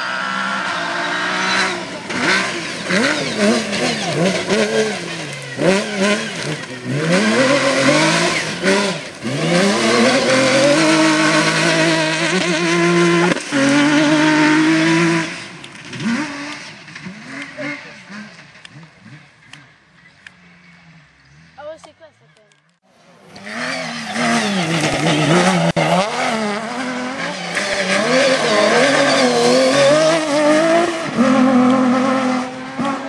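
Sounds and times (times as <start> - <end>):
rally car engines revving: 0.0 - 33.0.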